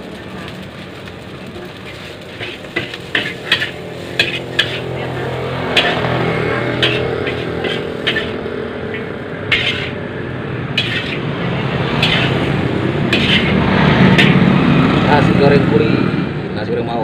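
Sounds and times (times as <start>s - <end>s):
gas burner rushing: 0.0s - 16.6s
metal spatula clanking on wok: 2.4s - 5.0s, 5.7s - 10.0s, 10.8s - 11.2s, 12.0s - 12.5s, 13.1s - 14.4s.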